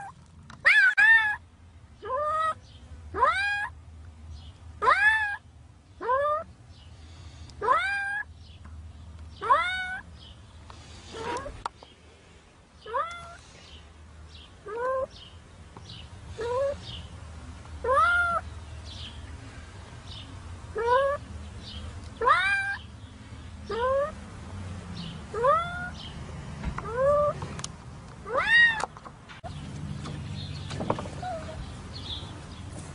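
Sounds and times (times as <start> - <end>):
cat meowing: 0.0 - 1.4, 4.8 - 5.4, 9.4 - 10.0, 22.2 - 22.8, 25.4 - 26.0, 28.3 - 28.9.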